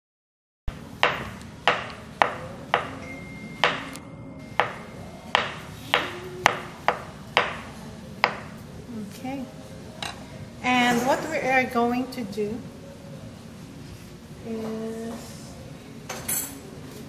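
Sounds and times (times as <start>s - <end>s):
knife chopping on wooden board: 1.0s - 3.0s, 4.6s - 7.6s.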